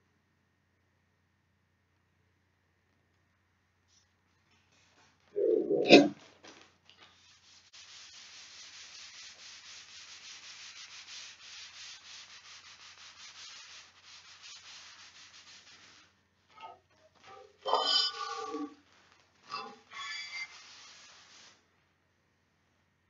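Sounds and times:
tissue scrubbing paper: 6.4 - 16.3, 20.1 - 21.7.

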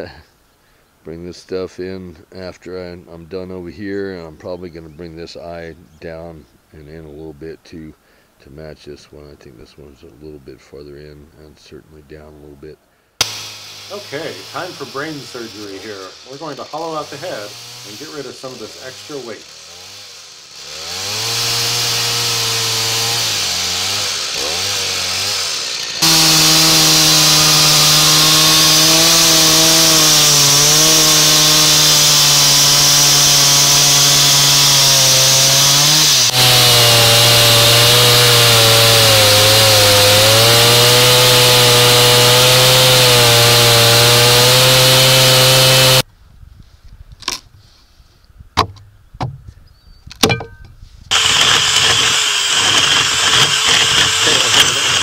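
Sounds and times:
chainsaw cutting wood: 13.2 - 46.0, 51.1 - 55.0.

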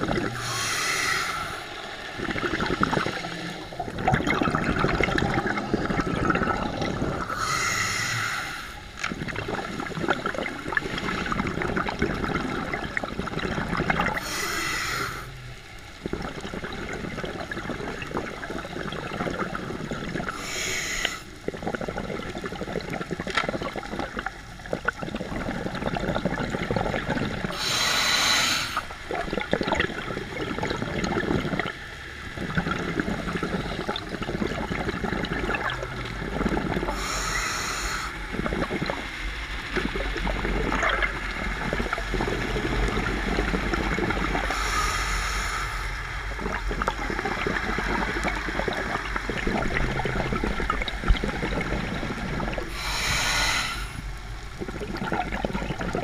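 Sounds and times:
bubbling gurgle of exhaled air: 0.0 - 56.0
regulator hissing inhalations: 0.4 - 1.7, 7.3 - 8.8, 14.2 - 15.4, 20.3 - 21.3, 27.5 - 28.9, 36.9 - 38.2, 44.5 - 46.0, 52.7 - 54.1.

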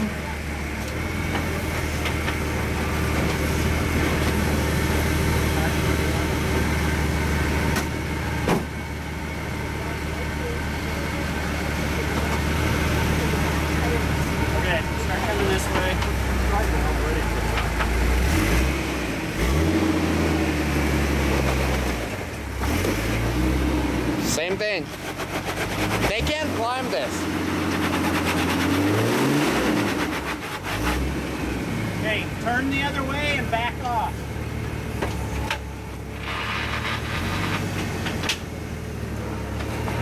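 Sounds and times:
off-road vehicle engine revving: 0.0 - 40.0
tires scraping on rock: 12.1 - 34.1, 35.2 - 38.5.

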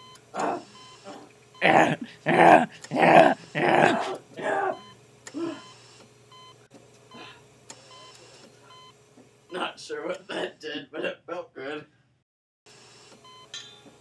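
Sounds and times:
loud wordless yelps: 1.6 - 4.8.

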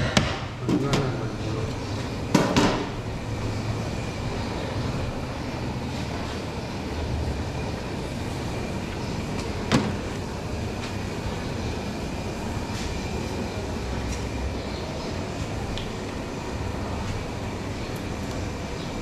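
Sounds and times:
gas burners roaring: 0.0 - 19.0.

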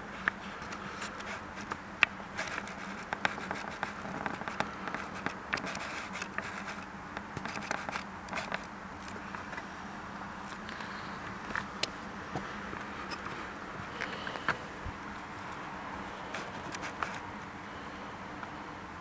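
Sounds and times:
faint hum: 0.0 - 19.0
camera handling clicks and scrapes: 2.4 - 9.6, 16.3 - 17.3.

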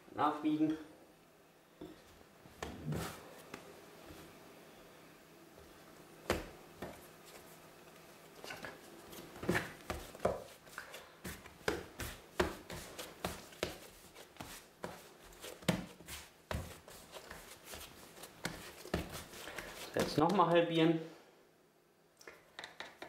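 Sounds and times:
dough kneaded on wooden board: 5.6 - 20.6.

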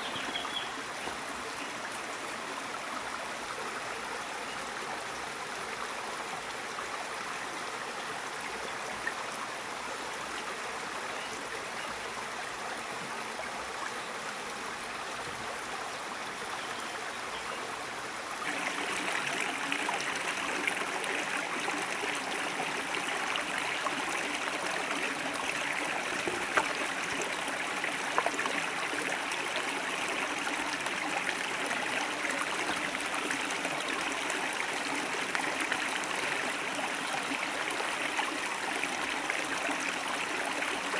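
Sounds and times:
river water rushing: 11.9 - 40.9.

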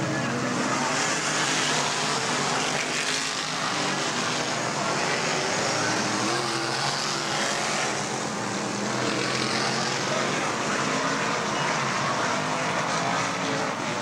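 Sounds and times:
race car engines running: 0.0 - 14.0.

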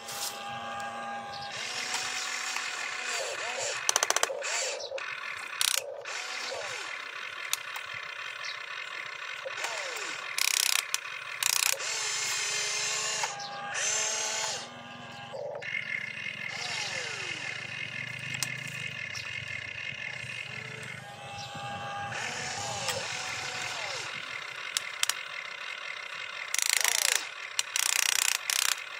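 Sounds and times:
toy excavator motors whining: 0.0 - 28.9
loud harsh bursts: 9.4 - 18.8, 19.4 - 25.1.

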